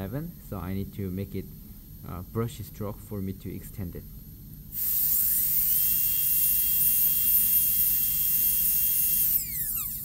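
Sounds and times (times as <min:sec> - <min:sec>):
dental drill high-pitched whine: 0:04.7 - 0:10.0.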